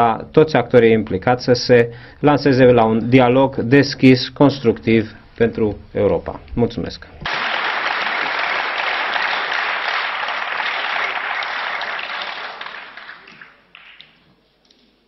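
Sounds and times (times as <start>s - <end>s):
audience applause: 7.3s - 14.2s.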